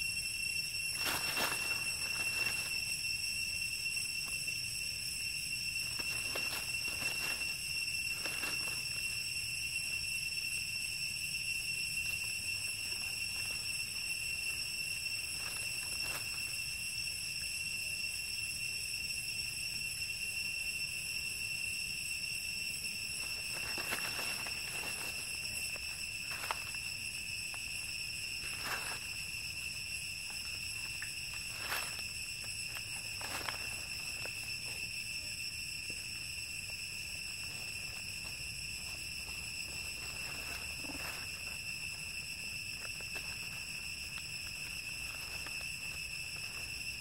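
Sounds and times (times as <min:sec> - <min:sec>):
high-pitched insect drone: 0:00.0 - 0:47.0
faint rustles: 0:00.9 - 0:02.9, 0:05.8 - 0:09.1, 0:23.2 - 0:26.9, 0:37.4 - 0:47.0.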